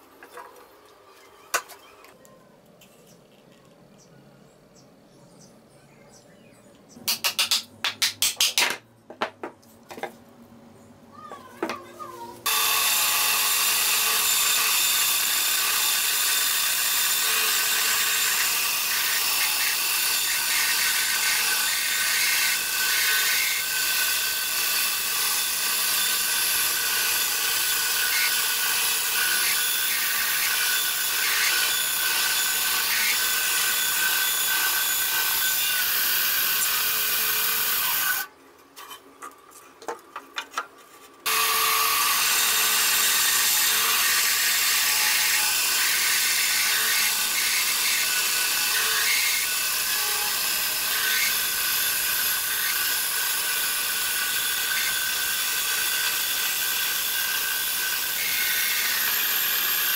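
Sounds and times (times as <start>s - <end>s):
band saw cutting wood: 12.4s - 38.3s, 41.2s - 59.9s.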